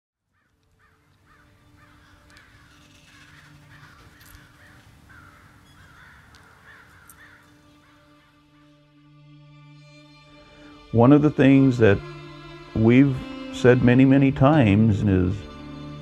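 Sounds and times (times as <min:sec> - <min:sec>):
crows cawing: 0:00.3 - 0:08.8.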